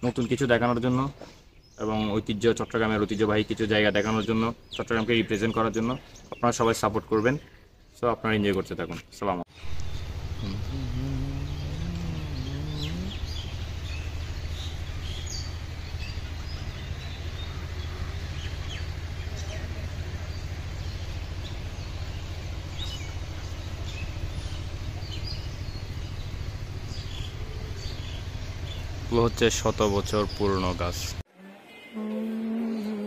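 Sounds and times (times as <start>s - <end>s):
steady low hum: 9.5s - 29.5s
bird chirps and calls: 9.5s - 30.8s.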